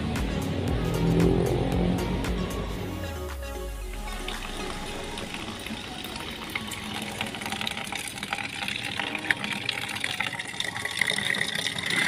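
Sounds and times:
water running into plastic bucket: 4.2 - 12.0.

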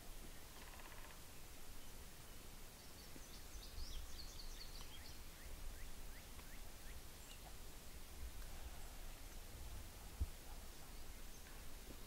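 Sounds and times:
faint bird chirps: 0.3 - 7.6
low wind rumble: 3.5 - 12.0.

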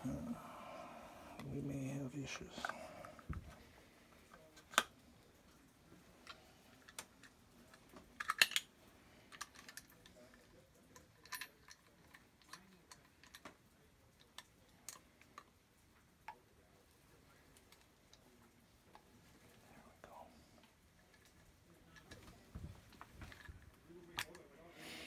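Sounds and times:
plastic parts clicking: 6.2 - 8.7.

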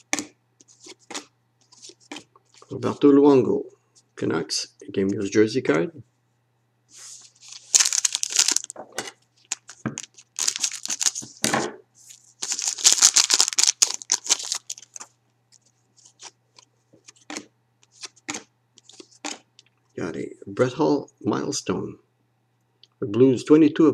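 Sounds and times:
foil wrapper crinkling: 7.0 - 8.8, 9.4 - 11.4, 12.0 - 16.7.

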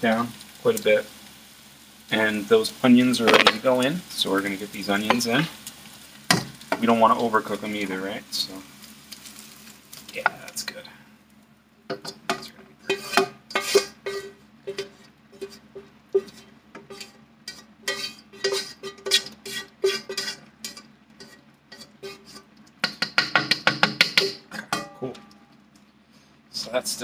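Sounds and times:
spoon scraping metal pan: 12.0 - 23.2.

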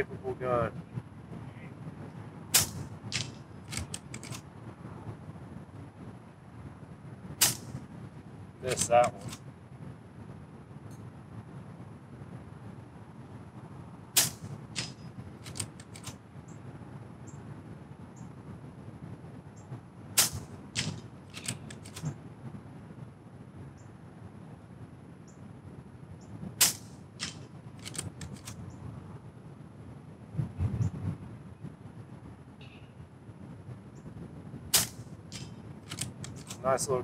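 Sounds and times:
air rifle shots: 2.5 - 4.4, 7.4 - 7.8, 8.6 - 9.4, 14.1 - 16.2, 20.2 - 22.2, 26.6 - 28.6, 34.7 - 36.6
rifle lever clicks: 3.1 - 4.4, 8.7 - 9.4, 14.8 - 16.2, 20.8 - 22.1, 27.2 - 28.6, 35.3 - 36.6.

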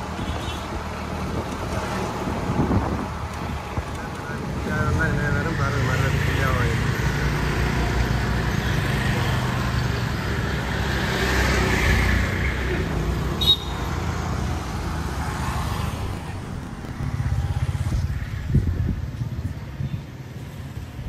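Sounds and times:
auto-rickshaw puttering: 0.0 - 14.9
scooter engines passing: 0.0 - 21.0.

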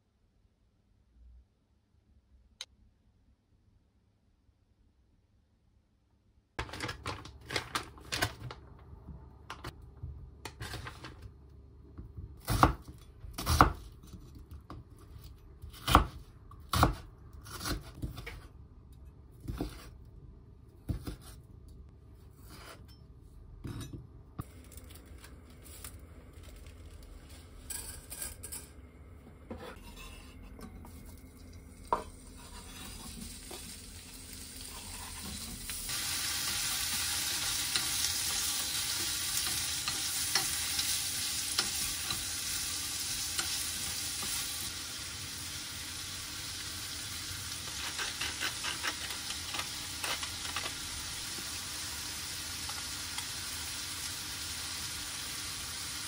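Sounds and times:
food sizzling in a pan: 31.9 - 56.0.

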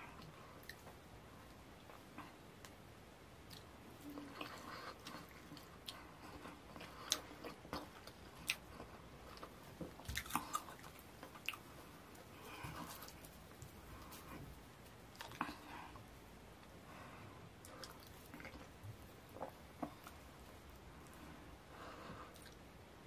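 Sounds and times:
close-up chewing: 3.5 - 14.5, 15.1 - 16.1, 17.6 - 20.2.

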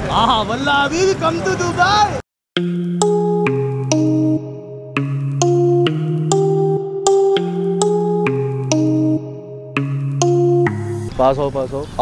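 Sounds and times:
keyboard chords: 2.6 - 11.2.

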